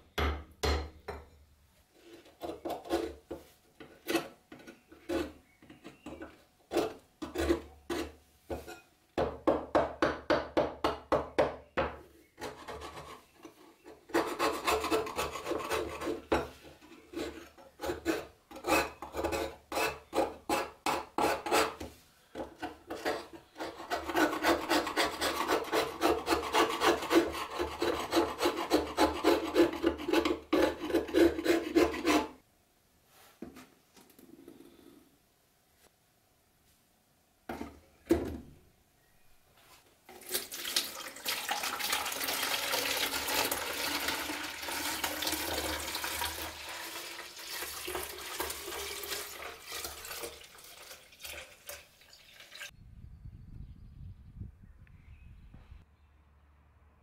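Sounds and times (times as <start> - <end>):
steel scraper scraping rust: 3.9 - 6.0, 12.4 - 32.4.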